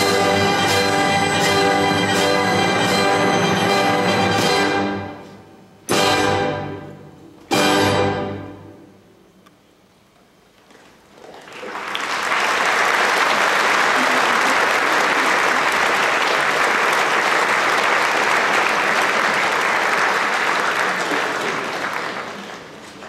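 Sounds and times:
large audience applauding: 11.2 - 23.0.

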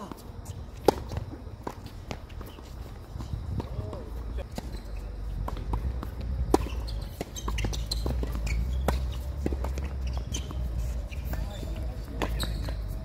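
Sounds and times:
tennis ball struck by rackets: 0.8 - 2.2, 5.4 - 10.6
tennis ball bouncing on court: 0.8 - 2.7, 5.4 - 13.0.

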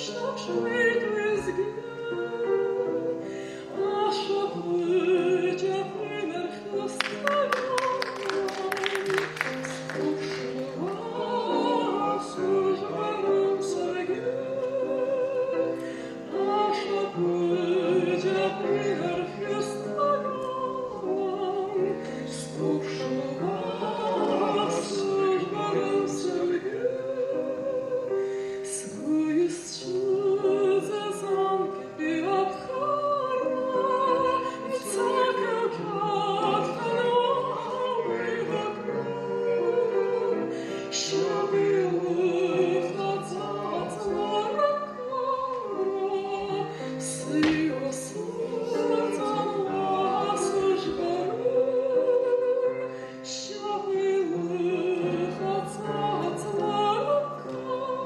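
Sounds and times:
grand piano: 0.0 - 58.0
person singing with vibrato: 0.0 - 58.0.

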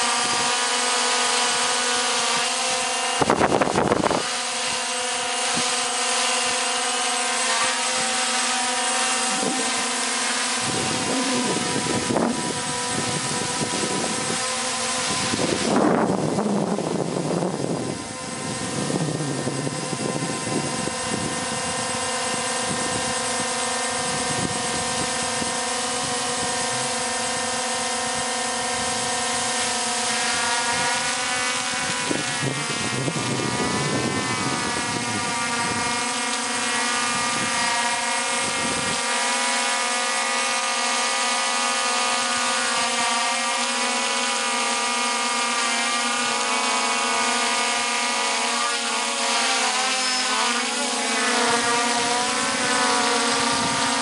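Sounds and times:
quadcopter propeller hum: 0.0 - 54.0.

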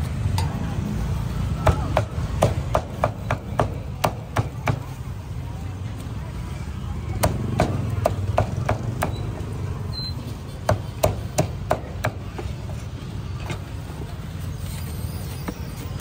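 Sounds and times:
low rumble of street noise: 0.0 - 16.0
cleaver chopping meat: 10.7 - 12.2.

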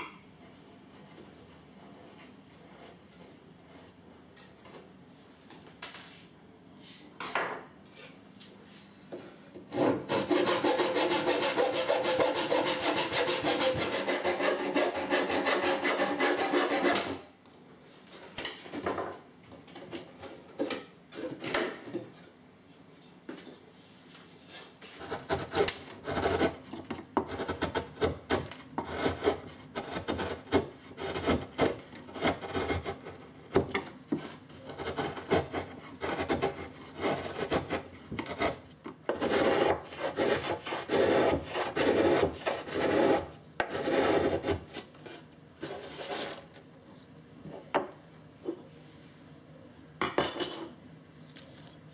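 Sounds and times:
fast scraping strokes on wood: 9.8 - 17.2, 24.9 - 26.6, 27.3 - 33.2, 34.2 - 44.8
chisel paring wood: 25.0 - 32.9.

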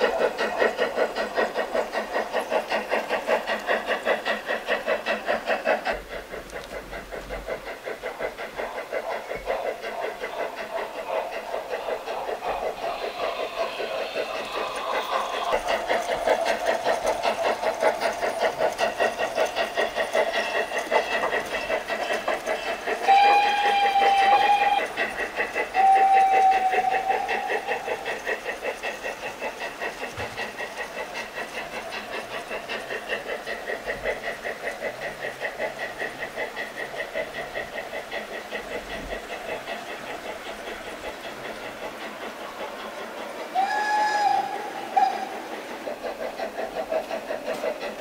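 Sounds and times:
model steam locomotive chuffing: 0.0 - 48.0
train whistle blasts: 23.0 - 24.9, 25.8 - 27.6, 43.6 - 45.3.

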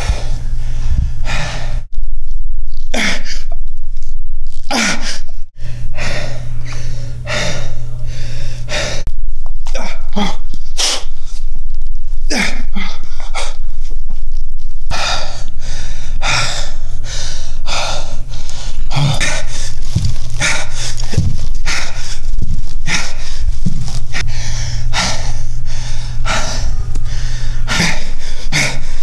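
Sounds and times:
man breathing hard: 0.0 - 1.9, 4.8 - 9.1, 9.7 - 11.5, 14.9 - 29.0
steady low hum: 0.0 - 29.0.

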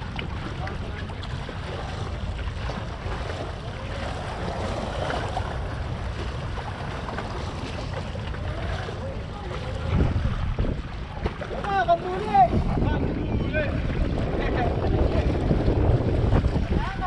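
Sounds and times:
waves washing against rocks: 0.0 - 17.0
wind buffeting microphone: 0.0 - 17.0.

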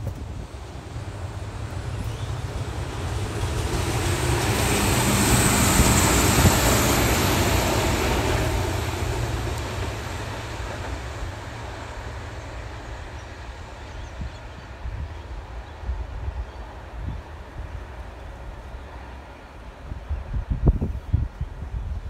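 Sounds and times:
wind rumble on microphone: 0.0 - 3.8, 13.9 - 18.9, 19.6 - 22.0
railcar engine and wheel noise: 0.0 - 22.0.

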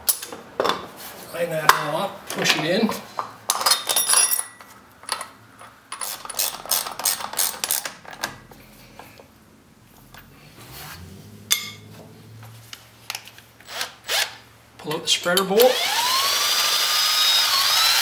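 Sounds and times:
low steady hum: 8.0 - 13.8.

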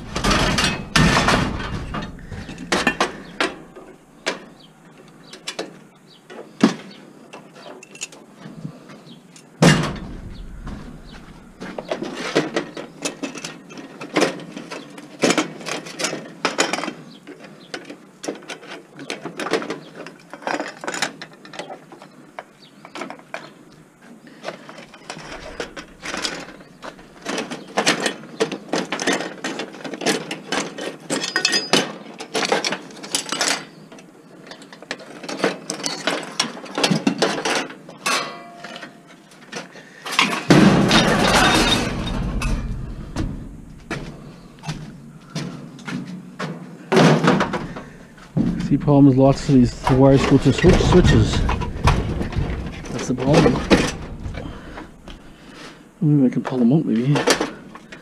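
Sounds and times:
sheet metal scraping: 9.6 - 12.4.

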